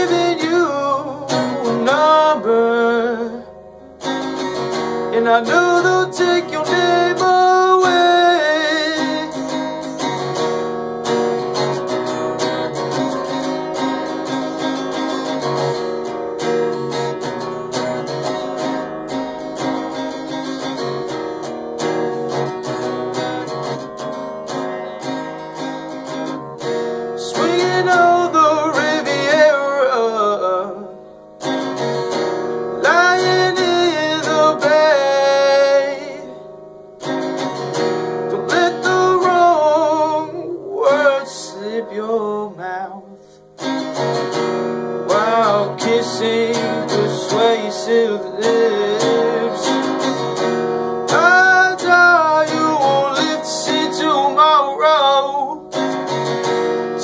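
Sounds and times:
man singing: 0:00.0 - 0:03.6, 0:04.9 - 0:10.3, 0:27.1 - 0:31.0, 0:32.6 - 0:36.5, 0:38.2 - 0:43.4, 0:45.0 - 0:55.8
picked guitar: 0:00.0 - 0:57.0.

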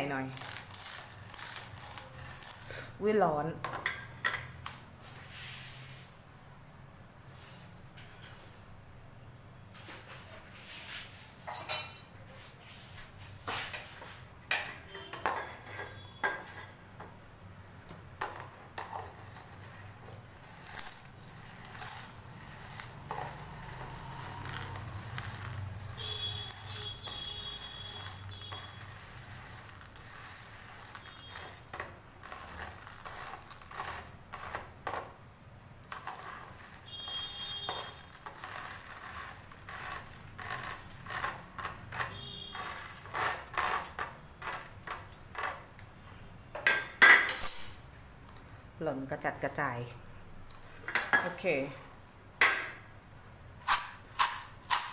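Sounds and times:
spoon scraping metal strainer: 0:00.2 - 0:03.0, 0:18.9 - 0:34.9, 0:35.9 - 0:45.5, 0:53.6 - 0:54.9.

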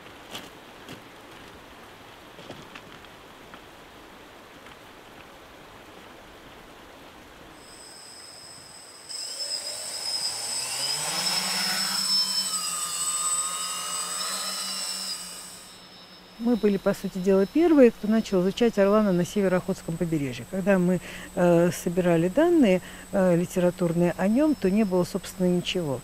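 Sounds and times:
steady background hiss: 0:00.0 - 0:26.0
drone motors buzzing: 0:07.6 - 0:26.0.

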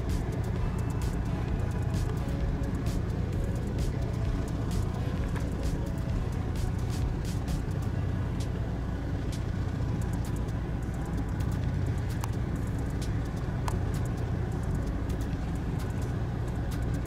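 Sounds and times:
low engine rumble: 0:00.0 - 0:17.0
faint ticks: 0:09.2 - 0:17.0.

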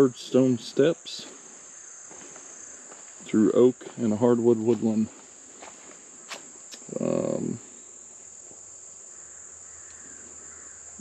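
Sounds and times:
insects droning: 0:00.0 - 0:11.0
man humming: 0:06.7 - 0:07.7.

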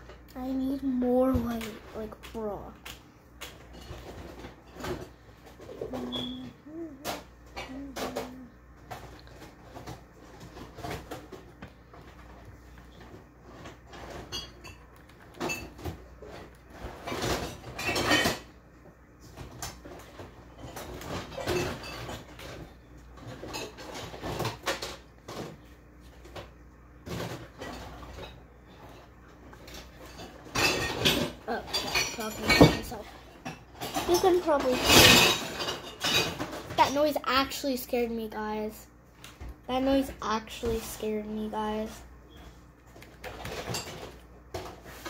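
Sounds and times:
dishes and cutlery clinking: 0:17.0 - 0:18.5, 0:29.7 - 0:36.8.

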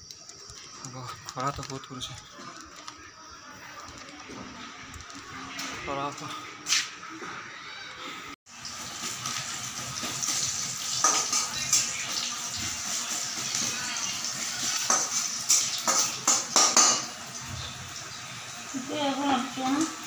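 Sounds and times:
food sizzling in oil: 0:08.5 - 0:20.0
metal spoon clinking on pan: 0:14.8 - 0:17.1.

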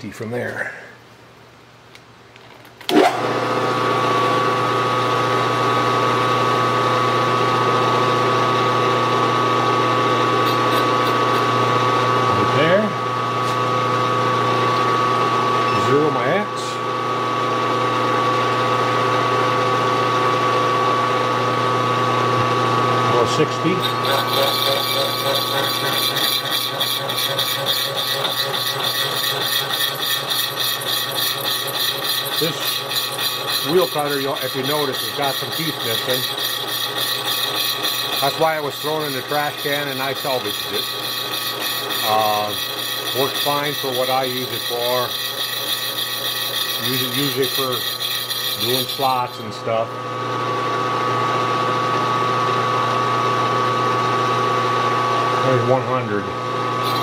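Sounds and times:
milling machine spindle humming: 0:02.9 - 0:57.0
saw chattering through metal: 0:23.9 - 0:49.5.

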